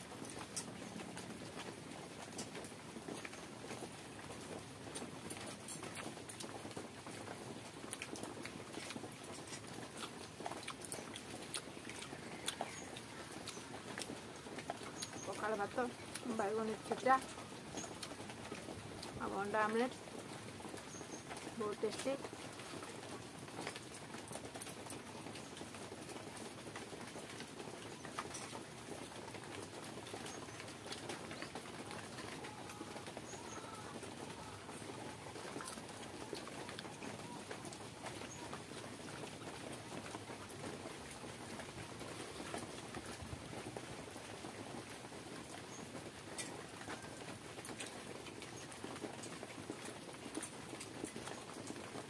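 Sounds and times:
person chewing: 0:07.8 - 0:15.3, 0:15.9 - 0:16.3, 0:17.2 - 0:19.2
faint bird call: 0:32.0 - 0:37.6.

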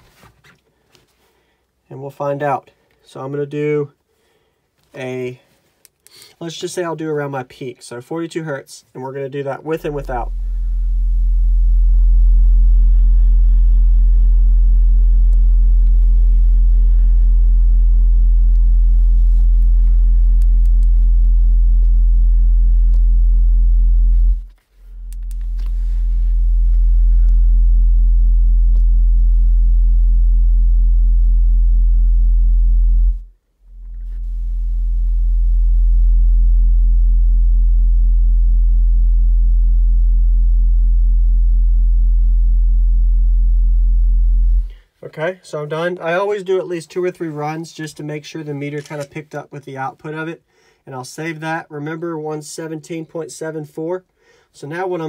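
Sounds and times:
loud subwoofer bass tone: 0:09.5 - 0:44.8.

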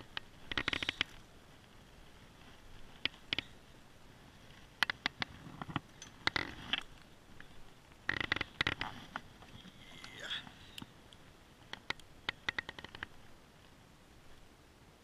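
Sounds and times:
river water hiss: 0:00.0 - 0:15.0
gear clicking and knocking on boat: 0:08.0 - 0:09.5, 0:11.7 - 0:13.1.

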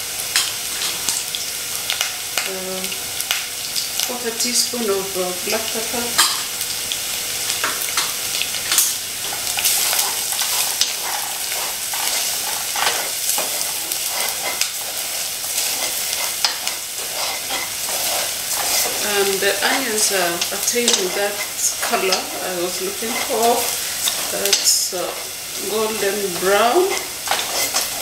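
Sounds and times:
food sizzling in oil: 0:00.0 - 0:28.0
spatula scraping metal pot: 0:09.6 - 0:19.4, 0:20.0 - 0:28.0.

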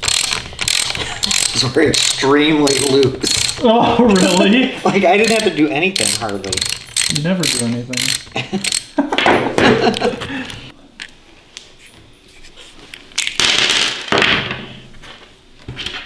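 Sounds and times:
socket ratchet clicking: 0:00.0 - 0:03.6, 0:04.2 - 0:04.4, 0:05.2 - 0:09.0.

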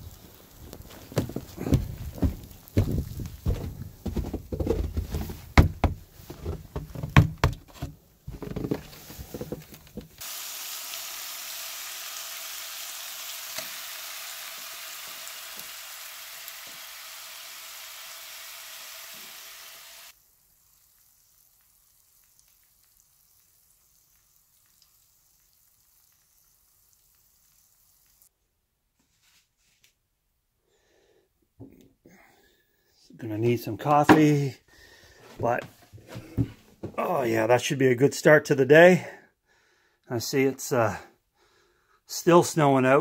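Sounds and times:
bacon sizzling in a skillet: 0:00.0 - 0:03.5, 0:10.2 - 0:28.3
heavy irregular thumps and knocks: 0:01.0 - 0:10.2, 0:35.3 - 0:37.0.

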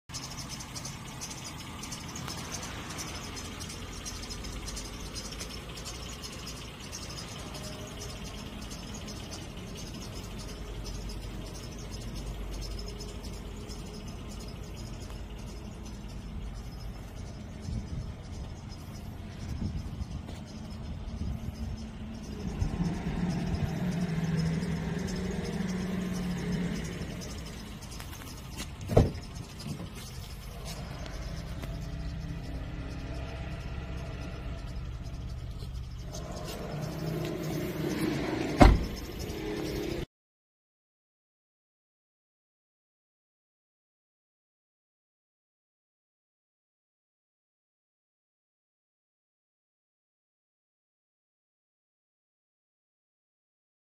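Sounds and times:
vehicle engine humming: 0:00.0 - 0:40.1
insects chirping: 0:00.1 - 0:40.1
low rumble: 0:10.4 - 0:40.0
car door latch clunk: 0:28.8 - 0:29.9, 0:38.5 - 0:39.0.

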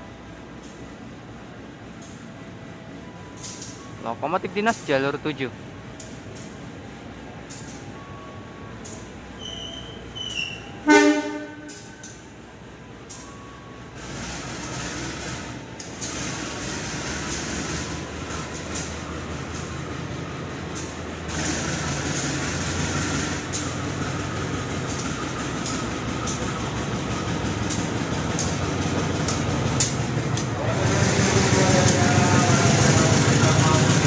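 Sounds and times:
locomotive engine rumble: 0:00.0 - 0:34.0
wheels clicking on track: 0:14.0 - 0:34.0.

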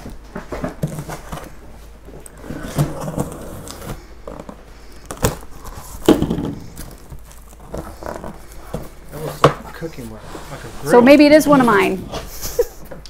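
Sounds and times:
cardboard packaging rustling: 0:00.3 - 0:12.4
cardboard box knocks: 0:06.0 - 0:06.6.

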